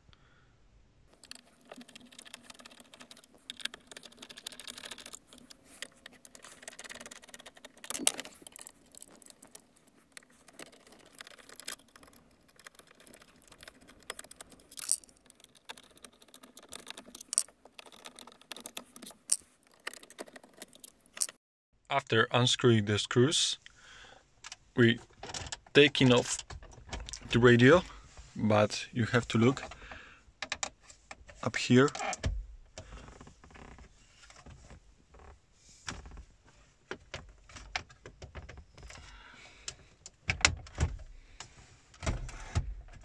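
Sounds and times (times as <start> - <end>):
screwdriver clicks and scrapes: 1.1 - 21.4.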